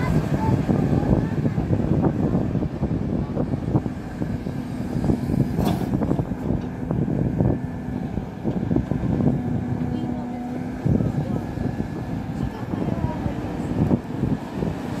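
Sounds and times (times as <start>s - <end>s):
excavator diesel engine under load: 0.0s - 15.0s
knocks and clunks: 5.5s - 6.8s.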